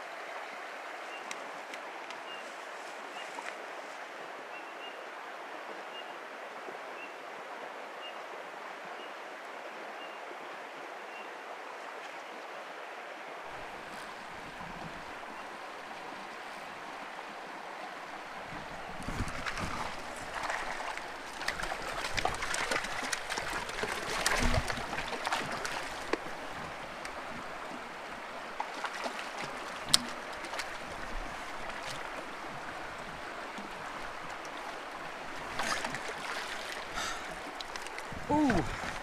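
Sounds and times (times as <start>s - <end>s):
creek running over rocks: 0.0s - 39.0s
fish splashing: 19.3s - 26.2s.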